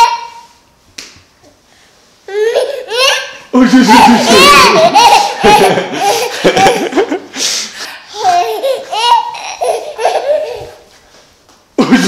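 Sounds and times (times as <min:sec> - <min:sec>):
baby laughing: 0:02.3 - 0:07.2, 0:07.8 - 0:10.9
adult laughing: 0:03.8 - 0:07.4, 0:11.8 - 0:12.0.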